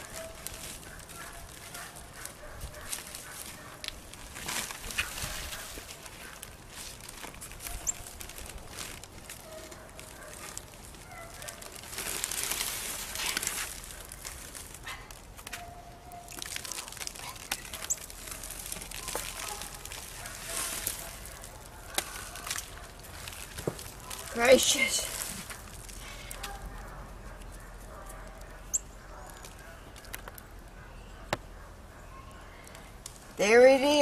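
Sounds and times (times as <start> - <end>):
plastic sheeting crinkling: 0.0 - 26.5
gritty scraping of sand and cement: 16.5 - 26.3.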